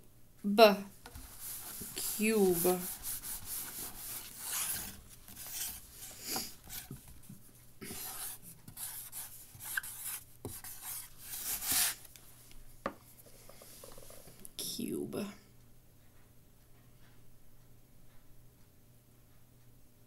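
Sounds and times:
pen scratching on surface: 0:01.2 - 0:07.0, 0:07.8 - 0:12.0.

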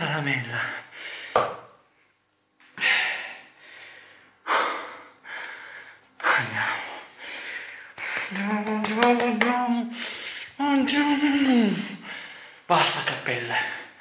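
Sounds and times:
man gasping breaths: 0:02.8 - 0:08.3.

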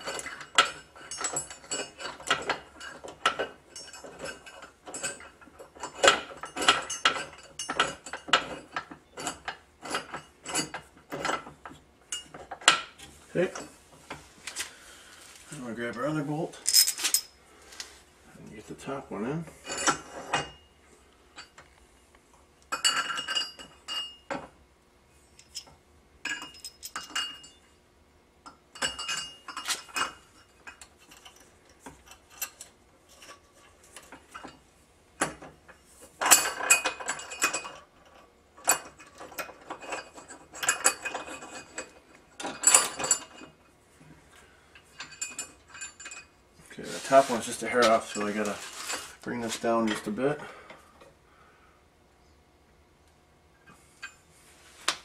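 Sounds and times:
metal bolt and washers clinking: 0:00.0 - 0:14.2, 0:15.9 - 0:17.4, 0:22.7 - 0:24.5, 0:25.4 - 0:27.7, 0:28.4 - 0:34.6, 0:35.2 - 0:43.7, 0:44.8 - 0:46.4, 0:47.0 - 0:50.5.

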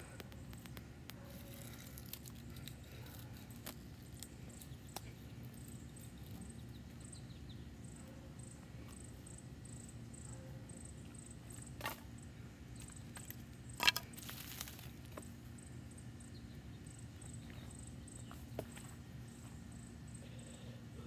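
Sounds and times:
crickets chirping: 0:00.0 - 0:21.0.

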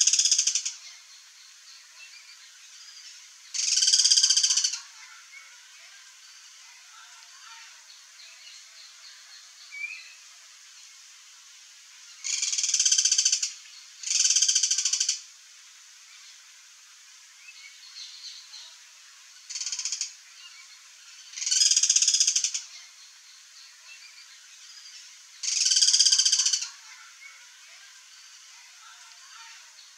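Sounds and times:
cuckoos rapid rattling calls: 0:00.0 - 0:01.6, 0:02.9 - 0:05.1, 0:12.2 - 0:15.2, 0:19.4 - 0:20.2, 0:21.2 - 0:22.9, 0:24.7 - 0:26.9.

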